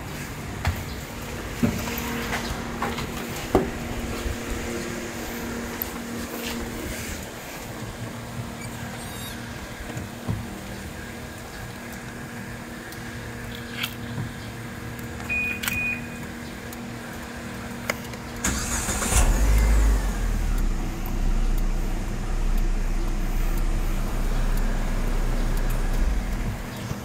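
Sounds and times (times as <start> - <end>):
car engine starting and idling: 0.5 - 13.4, 16.9 - 27.0
clicks: 17.8 - 27.0.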